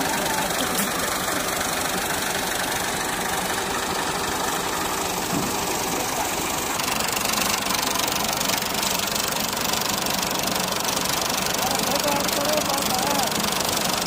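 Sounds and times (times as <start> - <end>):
diesel tractor engine idling: 0.0 - 14.0.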